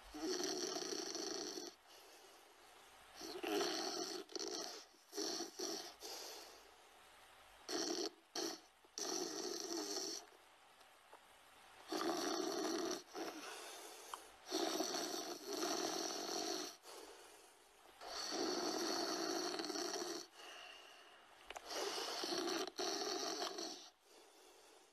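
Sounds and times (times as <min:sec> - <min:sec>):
loud snores: 0:00.0 - 0:02.1, 0:03.2 - 0:06.6, 0:07.6 - 0:10.3, 0:11.8 - 0:17.1, 0:18.0 - 0:21.0, 0:21.6 - 0:24.6
quiet breathing: 0:00.0 - 0:10.4, 0:11.4 - 0:24.9.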